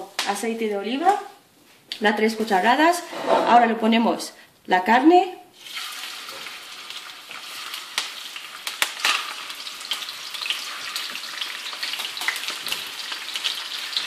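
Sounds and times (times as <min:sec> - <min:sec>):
meat sizzling in hot oil: 0:05.6 - 0:14.0.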